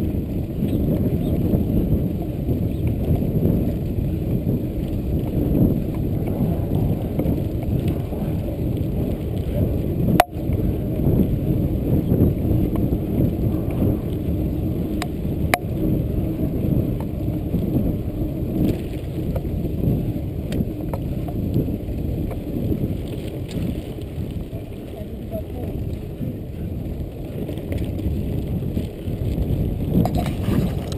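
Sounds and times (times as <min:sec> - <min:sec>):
bike rumbling on gravel: 0:00.0 - 0:30.9
bike rattling clicks and knocks: 0:26.9 - 0:30.9.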